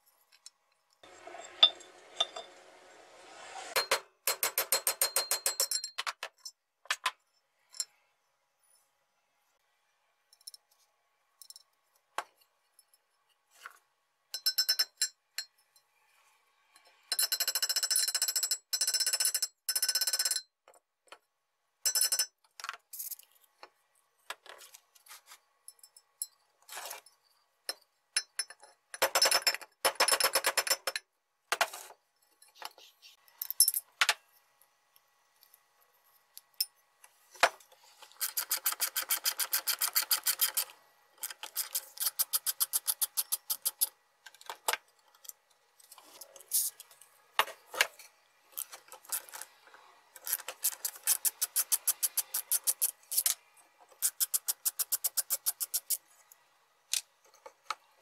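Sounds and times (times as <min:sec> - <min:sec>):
tools clicking and tapping: 0:00.1 - 0:01.0, 0:03.8 - 0:08.0, 0:10.3 - 0:10.8, 0:11.4 - 0:15.8, 0:16.7 - 0:24.6, 0:25.7 - 0:34.4, 0:36.3 - 0:49.5, 0:50.2 - 0:56.0.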